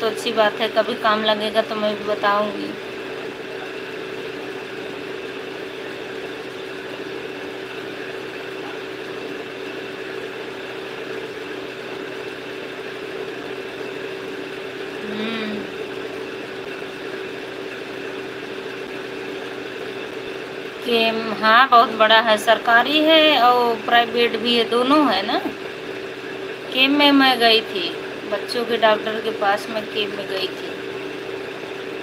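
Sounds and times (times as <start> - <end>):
steady mechanical hum: 0.0 - 32.0.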